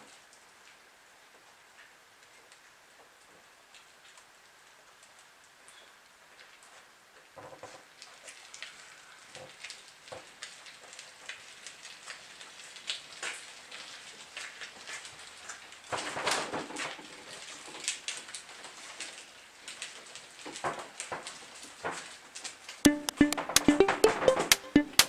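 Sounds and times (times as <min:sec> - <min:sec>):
wheels rolling over wet pavement: 0:07.8 - 0:22.6.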